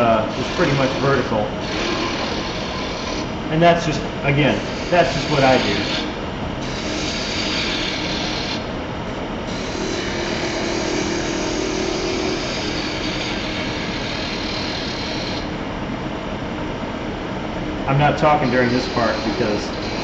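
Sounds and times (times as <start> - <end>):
wood lathe running: 0.0 - 8.7, 9.5 - 15.5, 17.9 - 20.0
gouge scraping wood: 0.3 - 3.3, 4.5 - 8.6, 18.4 - 20.0.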